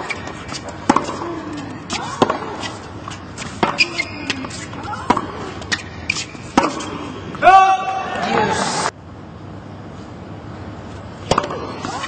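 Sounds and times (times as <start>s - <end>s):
racket striking tennis ball: 0.0s - 7.4s, 11.2s - 12.0s.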